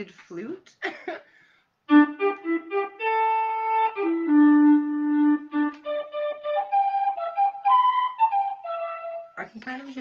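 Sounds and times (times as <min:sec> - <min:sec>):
electronic wind instrument notes: 0:01.9 - 0:09.4.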